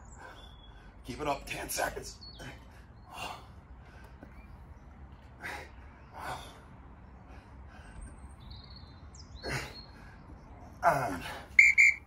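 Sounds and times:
man breathing hard: 5.3 - 8.2.

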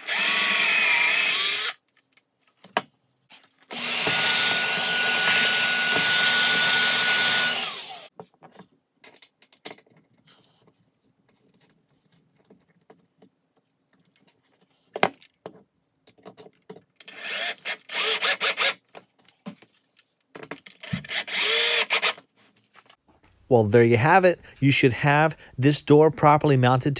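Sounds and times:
power drill whining: 0.0 - 1.8, 3.7 - 8.1, 17.0 - 18.8, 20.8 - 22.2.

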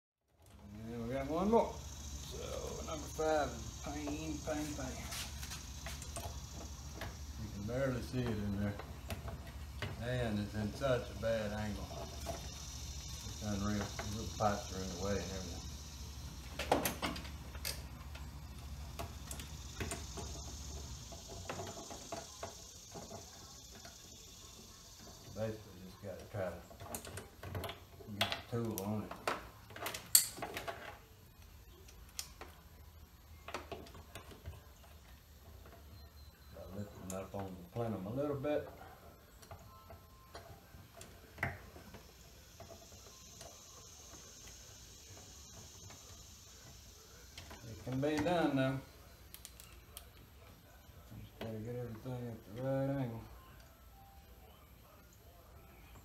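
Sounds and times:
hand tool clicks and scrapes: 29.8 - 31.0.

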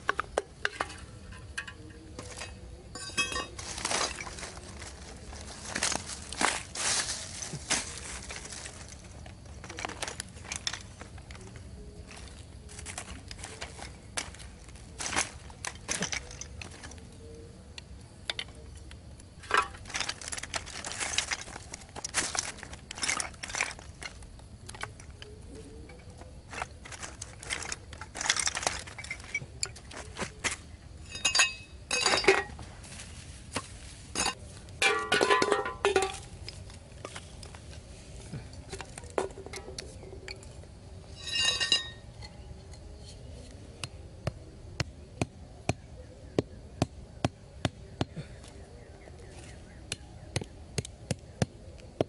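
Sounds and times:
taps and scrapes on sandy ground: 0.0 - 17.1, 17.8 - 40.6
ringing clinks: 2.9 - 3.6, 31.0 - 32.5, 41.2 - 42.4.

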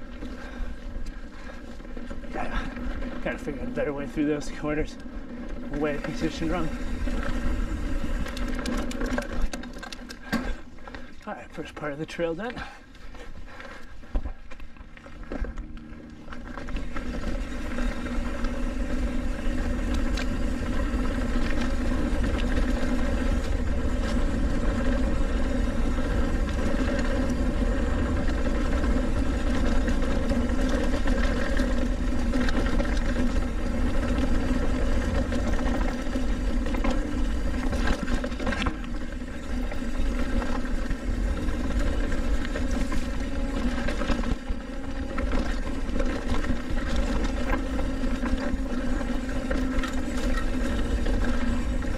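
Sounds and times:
tyres rolling on dirt: 0.0 - 51.9
bike knocks and rattles: 2.0 - 11.2.

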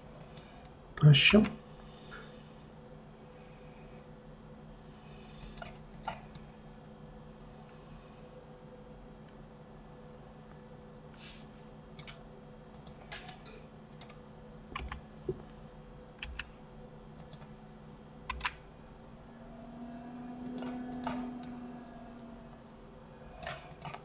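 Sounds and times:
low hum: 0.0 - 24.0
keyboard keys and mouse clicks: 5.4 - 6.5, 12.0 - 15.4, 16.2 - 16.5, 17.2 - 17.5, 18.3 - 18.6, 20.4 - 22.3, 23.4 - 24.0.

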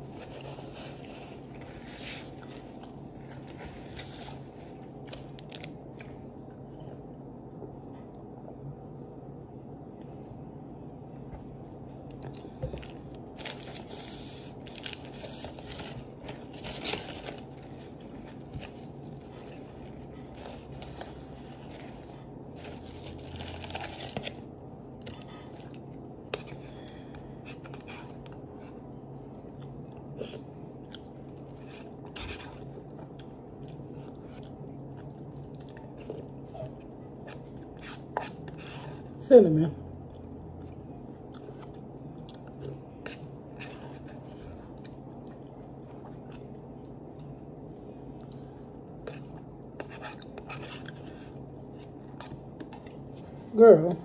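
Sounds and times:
steady background hum: 0.0 - 54.0
chewing: 40.0 - 53.4.

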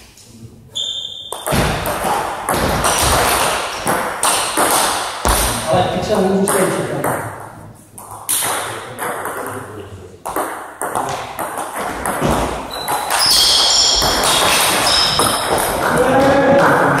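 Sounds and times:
shoes squeaking on wooden floor: 11.8 - 16.7.

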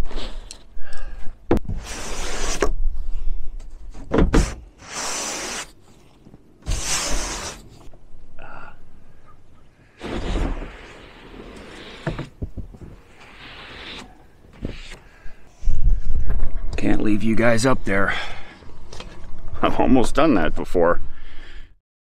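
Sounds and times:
brush scraping snow off panels: 1.8 - 2.6, 4.4 - 5.8, 6.6 - 7.8, 13.0 - 15.0.

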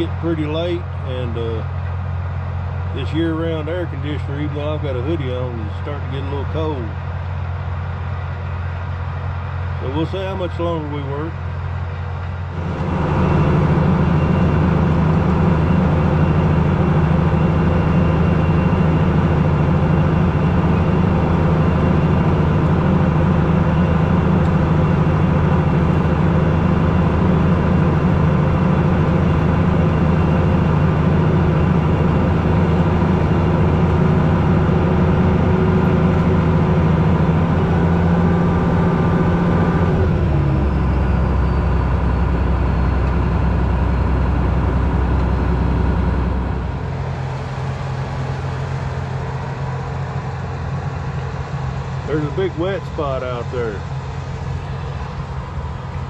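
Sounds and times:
faint high whine: 0.0 - 37.8
tractor diesel engine running: 0.0 - 56.0.

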